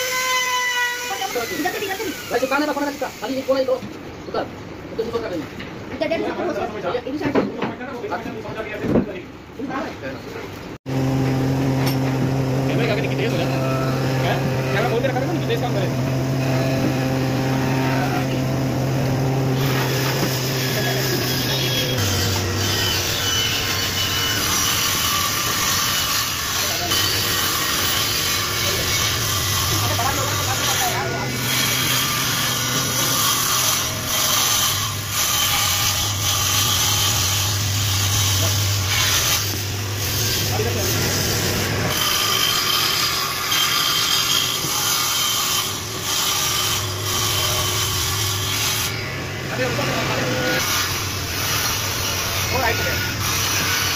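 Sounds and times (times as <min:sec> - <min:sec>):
table saw motor hum: 0:10.9 - 0:53.9.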